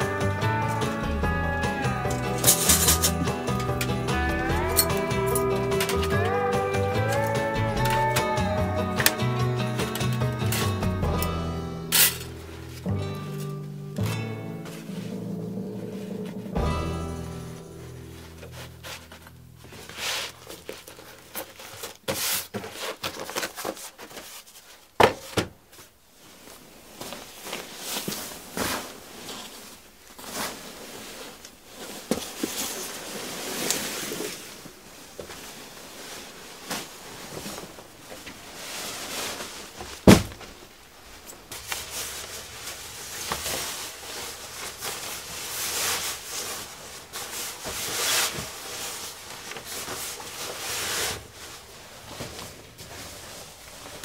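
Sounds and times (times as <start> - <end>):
fabric rustling: 11.8 - 25.0, 25.6 - 54.0.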